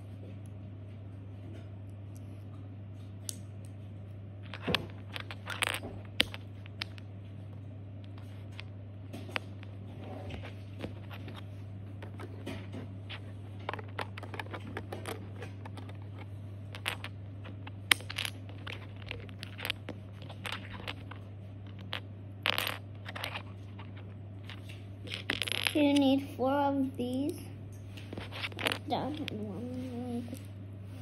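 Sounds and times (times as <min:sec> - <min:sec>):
steady low hum: 0:00.0 - 0:31.0
plastic bricks clicking and rattling: 0:04.4 - 0:07.0, 0:13.7 - 0:25.8, 0:28.2 - 0:29.4.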